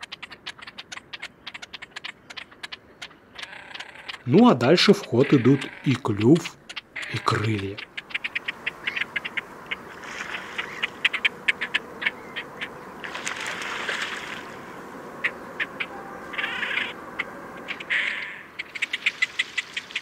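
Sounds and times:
birds sharp clicking calls: 0:00.0 - 0:14.4, 0:15.2 - 0:20.0
water splashing: 0:04.0 - 0:20.0.

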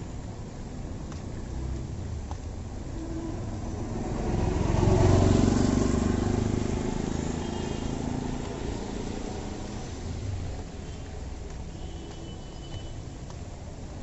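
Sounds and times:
tyres hissing on wet street: 0:00.0 - 0:14.0
auto-rickshaw engine passing: 0:02.9 - 0:10.8
steady rain: 0:06.6 - 0:14.0.

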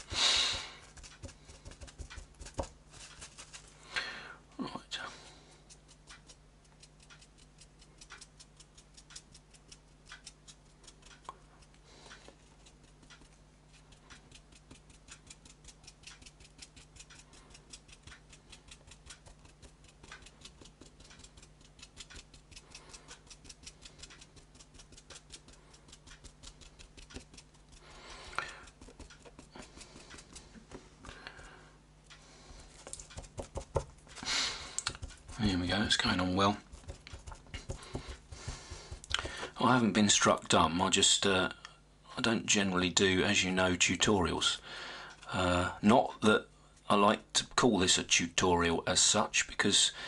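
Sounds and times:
paintbrush dabbing strokes: 0:00.0 - 0:03.8, 0:05.3 - 0:31.6, 0:32.3 - 0:39.8
brush scrubbing strokes: 0:00.0 - 0:03.9, 0:05.4 - 0:31.5, 0:32.4 - 0:39.8.

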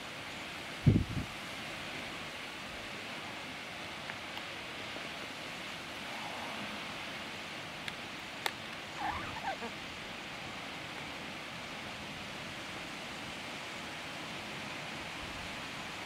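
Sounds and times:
rain hissing: 0:00.0 - 0:16.0
warbling gobbling call: 0:08.9 - 0:09.8.

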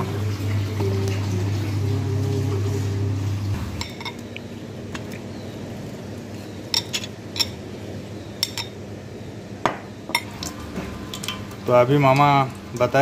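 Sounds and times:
fork clinking against a plate: 0:03.8 - 0:04.3, 0:06.7 - 0:07.6, 0:08.4 - 0:08.8.

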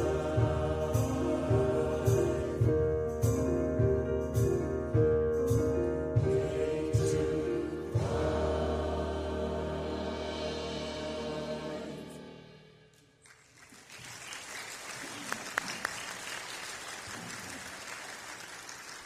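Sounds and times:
choir singing: 0:00.0 - 0:03.4, 0:06.1 - 0:12.8
congregation applauding: 0:13.2 - 0:19.0.

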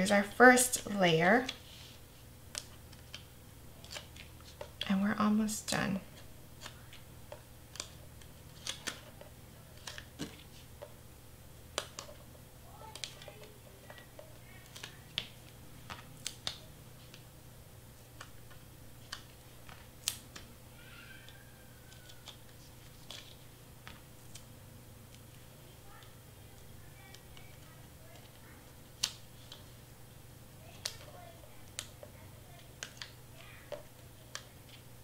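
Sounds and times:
steady low hum: 0:00.0 - 0:35.0
small clicks and taps: 0:18.2 - 0:20.5, 0:30.8 - 0:34.8.

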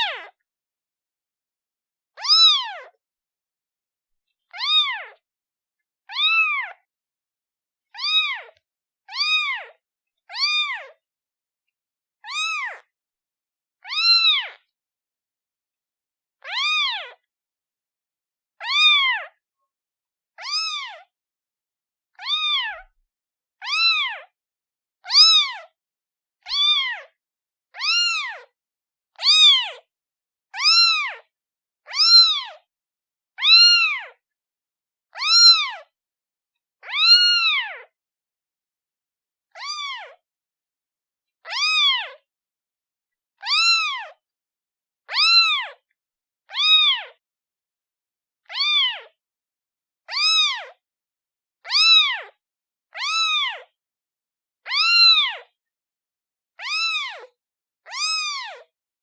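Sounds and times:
kitten meowing: 0:00.0 - 0:00.4, 0:02.2 - 0:03.0, 0:04.5 - 0:05.2, 0:06.1 - 0:06.9, 0:07.9 - 0:11.0, 0:12.2 - 0:12.9, 0:13.8 - 0:14.6, 0:16.4 - 0:17.2, 0:18.6 - 0:19.4, 0:20.4 - 0:21.1, 0:22.2 - 0:22.9, 0:23.6 - 0:24.3, 0:25.0 - 0:25.7, 0:26.4 - 0:27.1, 0:27.7 - 0:28.5, 0:29.2 - 0:29.8, 0:30.6 - 0:31.3, 0:31.9 - 0:32.6, 0:33.4 - 0:34.2, 0:35.1 - 0:35.9, 0:36.8 - 0:37.9, 0:39.5 - 0:40.2, 0:41.4 - 0:42.2, 0:43.4 - 0:44.2, 0:45.0 - 0:45.8, 0:46.5 - 0:47.2, 0:48.4 - 0:49.2, 0:50.1 - 0:50.8, 0:51.6 - 0:53.7, 0:54.6 - 0:55.5, 0:56.6 - 0:58.7.

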